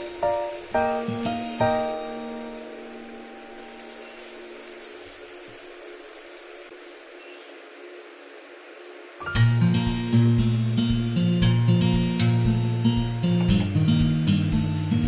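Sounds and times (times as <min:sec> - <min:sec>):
acoustic guitar music: 0:00.0 - 0:03.7, 0:09.2 - 0:15.0
onions sizzling in a pan: 0:00.0 - 0:15.0.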